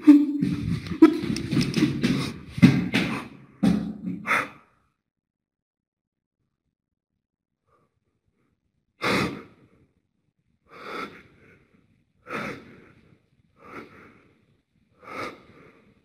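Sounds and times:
man breathing heavily: 1.6s - 3.6s, 4.2s - 4.8s, 9.0s - 9.8s, 10.7s - 16.0s.

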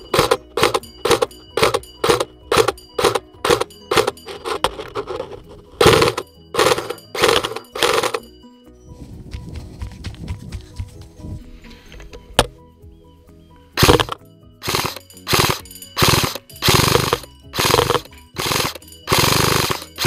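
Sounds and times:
airsoft rifle shots: 13.8s - 20.0s.

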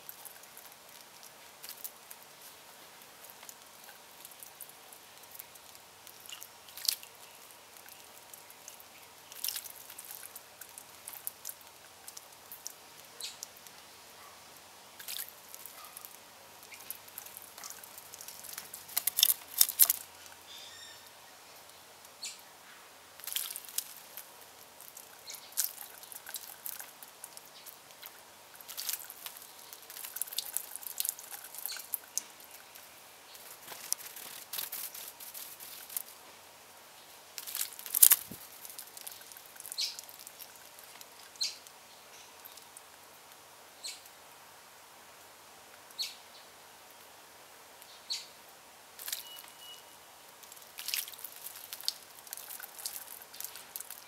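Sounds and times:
birds splashing in water: 15.0s - 20.0s, 50.6s - 54.0s
high bird chirps: 20.5s - 21.1s, 49.2s - 49.9s.

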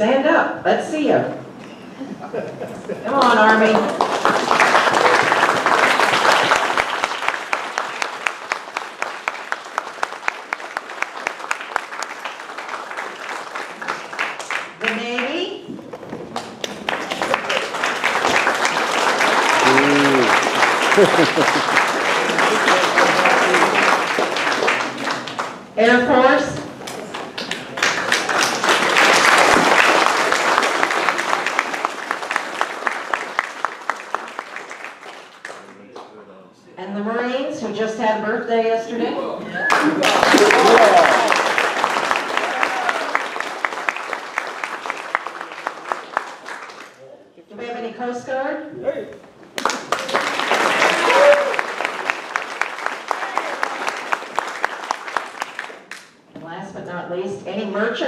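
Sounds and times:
audience applause: 2.9s - 14.9s, 15.8s - 25.8s, 26.8s - 36.1s, 39.6s - 47.0s, 49.6s - 56.2s.

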